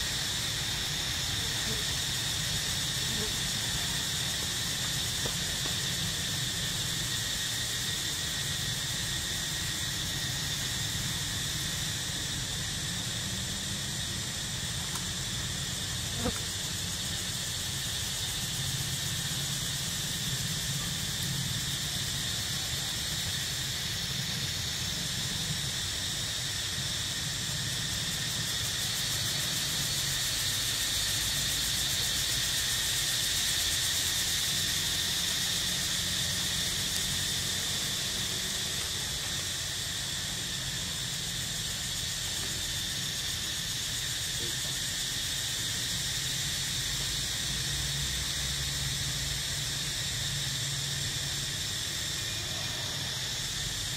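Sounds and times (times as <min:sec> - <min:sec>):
high-pitched insect drone: 0:00.0 - 0:53.9.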